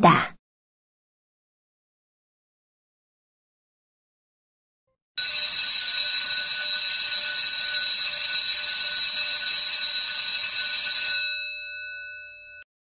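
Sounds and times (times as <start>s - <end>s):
electric alarm bell ringing: 5.2s - 12.7s.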